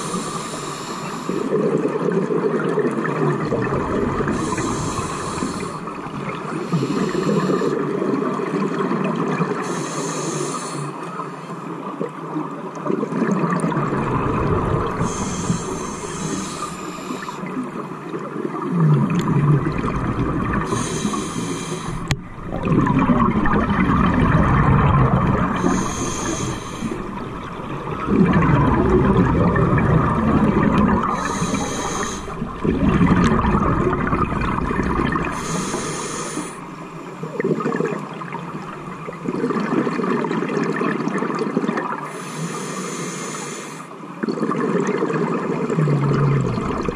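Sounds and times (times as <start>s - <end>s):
hissing regulator inhale: 0.0s - 1.5s, 4.1s - 7.9s, 9.6s - 11.0s, 14.2s - 17.6s, 20.6s - 22.2s, 25.2s - 28.4s, 30.8s - 32.6s, 35.2s - 37.2s, 42.1s - 44.0s
exhaled bubbles rushing: 1.3s - 9.6s, 12.7s - 42.0s, 44.2s - 46.9s.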